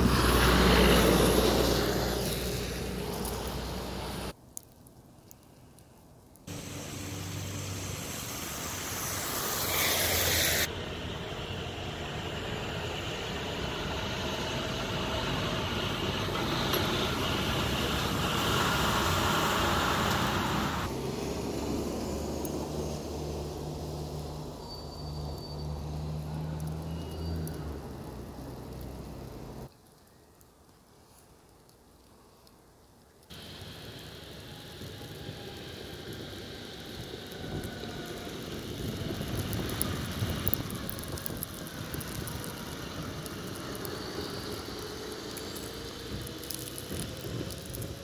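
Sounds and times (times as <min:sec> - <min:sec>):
traffic engines running: 0:00.0 - 0:04.4, 0:06.5 - 0:29.7, 0:33.3 - 0:48.0.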